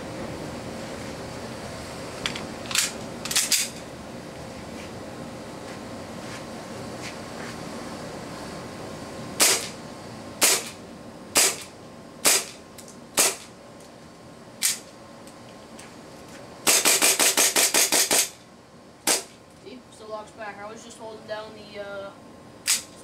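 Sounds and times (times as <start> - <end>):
airsoft pistol shots: 9.4 - 9.8, 10.4 - 10.8, 11.4 - 12.6, 13.2 - 13.5, 16.7 - 18.4, 19.1 - 19.3.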